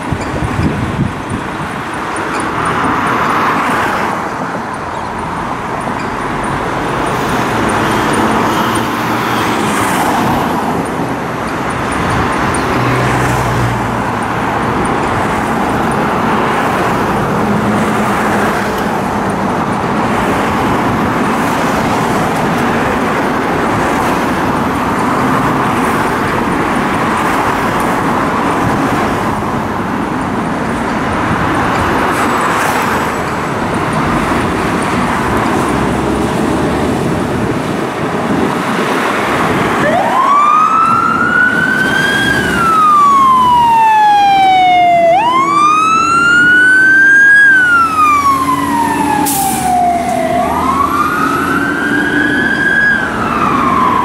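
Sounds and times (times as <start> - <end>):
fire truck engines running: 0.0 - 54.0
road traffic: 0.0 - 54.0
wailing fire engine siren: 39.4 - 54.0.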